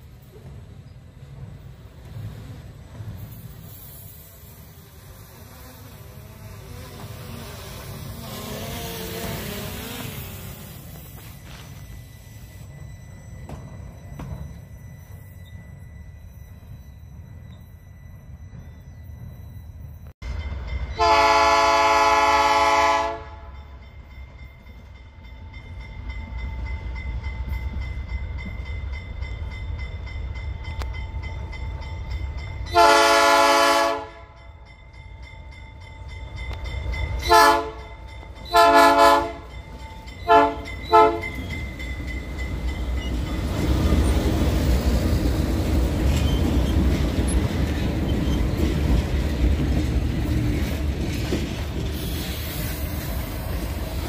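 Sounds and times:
locomotive engines passing: 0:00.0 - 0:22.7, 0:23.7 - 0:54.0
locomotive horn blasts: 0:21.0 - 0:23.6, 0:32.7 - 0:34.4, 0:37.2 - 0:37.9, 0:38.5 - 0:39.5, 0:40.2 - 0:41.3
freight wagons rolling: 0:40.1 - 0:52.3.

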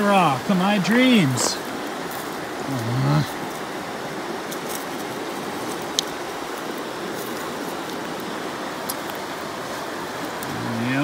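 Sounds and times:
running water: 0:00.0 - 0:11.0.

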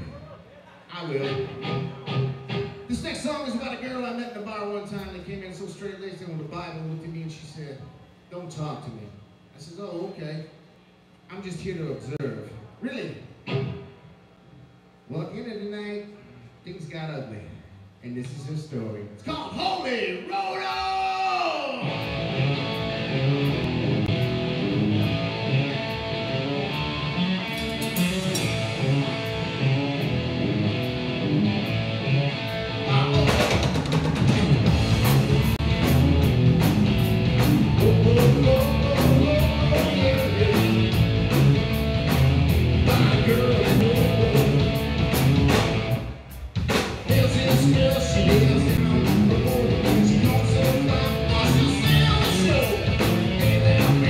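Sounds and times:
electric guitar: 0:01.1 - 0:03.2, 0:13.4 - 0:14.1, 0:21.8 - 0:54.0
live rock band playing: 0:01.2 - 0:03.2, 0:21.8 - 0:54.0
drum kit: 0:21.9 - 0:54.0
lead vocals: 0:37.6 - 0:41.2, 0:42.6 - 0:45.2, 0:47.0 - 0:54.0.

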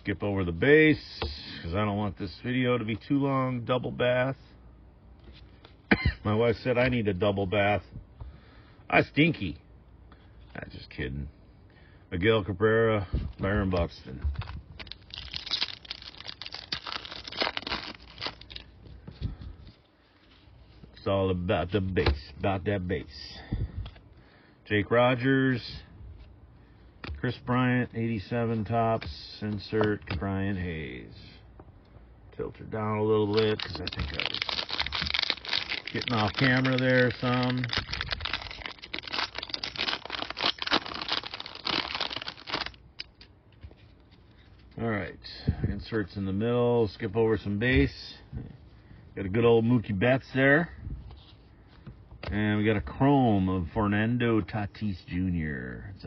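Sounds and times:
wrapper crackling: 0:14.4 - 0:18.8, 0:33.2 - 0:43.1.

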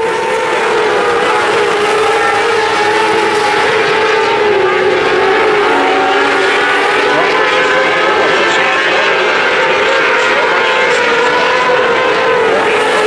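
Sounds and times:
racing car engines running hard: 0:00.0 - 0:13.0.

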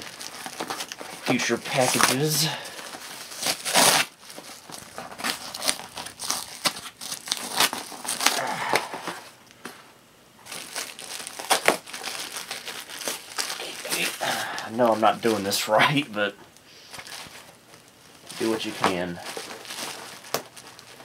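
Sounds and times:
bubble wrap crinkling: 0:00.0 - 0:09.8, 0:10.4 - 0:21.0
cardboard box ripping: 0:03.2 - 0:09.2.

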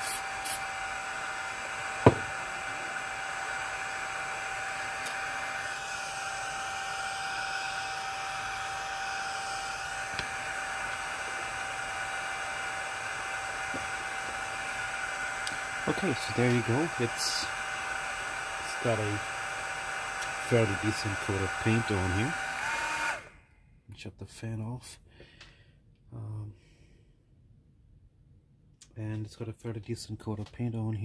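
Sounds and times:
electric fan humming: 0:00.0 - 0:23.5.

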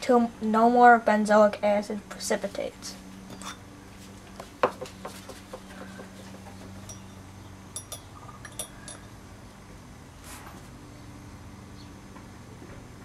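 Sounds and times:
steady low hum: 0:00.0 - 0:13.0
glass bottle clinking: 0:06.8 - 0:07.2.

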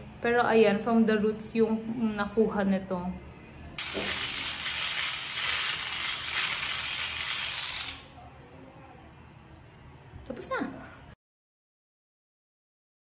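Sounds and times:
electric epilator buzzing: 0:03.8 - 0:08.1.

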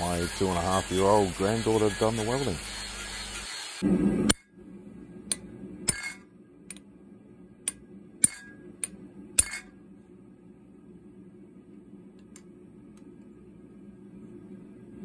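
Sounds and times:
faint low hum: 0:03.8 - 0:15.0
hammer striking steel on anvil: 0:07.7 - 0:09.7.

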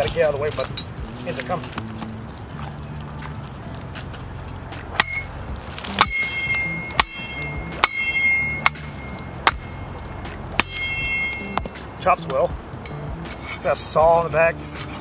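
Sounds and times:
shovel chopping into tree trunk: 0:04.9 - 0:09.8
metallic ringing of blade: 0:06.0 - 0:10.0, 0:10.6 - 0:11.7.

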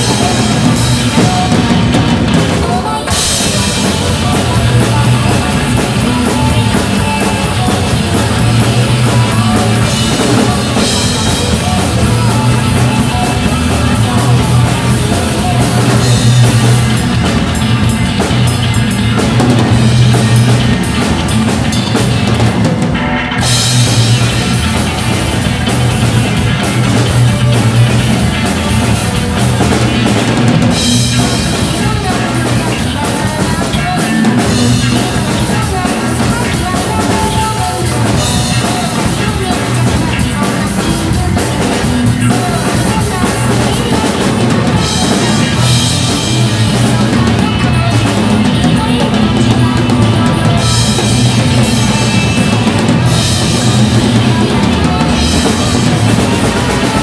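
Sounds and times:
drum kit rock groove: 0:00.0 - 0:57.0
rock backing track: 0:00.0 - 0:57.0.

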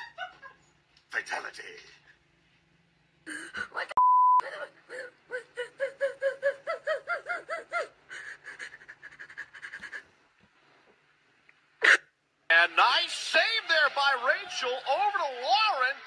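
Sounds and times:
young woman laughing uncontrollably: 0:00.0 - 0:00.6, 0:05.3 - 0:10.1
censor bleep: 0:04.0 - 0:04.4.

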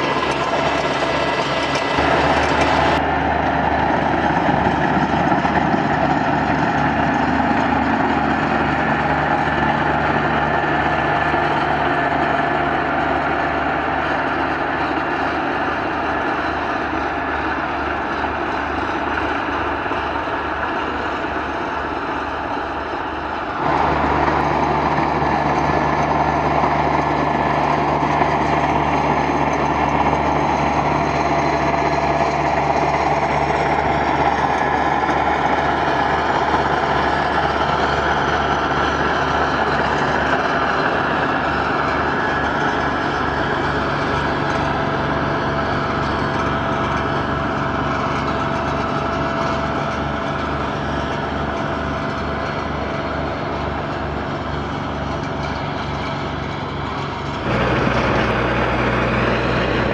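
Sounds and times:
diesel tractor engine under load: 0:00.0 - 0:59.9.

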